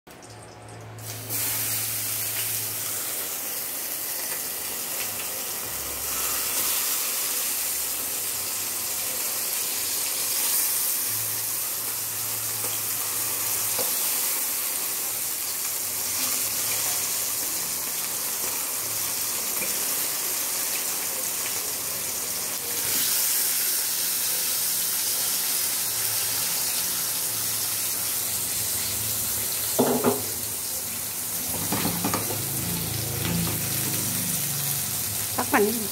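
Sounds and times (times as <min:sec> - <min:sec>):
eggplants sizzling in hot oil: 0:00.2 - 0:35.9.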